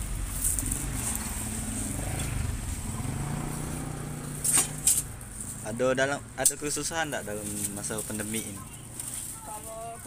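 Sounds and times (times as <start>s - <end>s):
engine humming: 0.0s - 6.5s.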